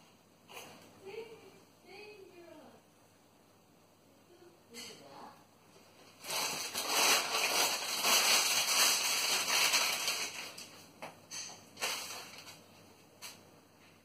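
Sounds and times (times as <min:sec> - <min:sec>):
packaging crinkling and rustling: 0:05.9 - 0:13.4.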